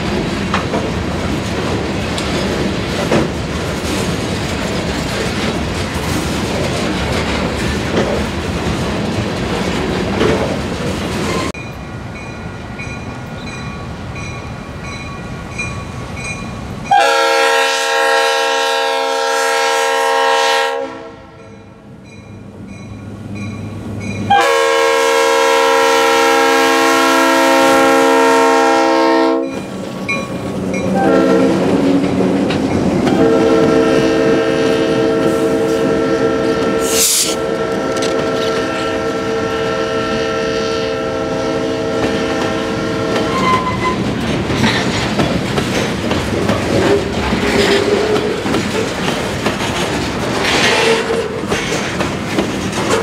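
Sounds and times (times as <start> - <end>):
train wheels clattering: 0.0 - 16.6, 29.4 - 34.2, 41.9 - 53.0
locomotive air horn blasts: 16.9 - 21.5, 24.3 - 29.6, 31.0 - 31.6, 33.1 - 44.0.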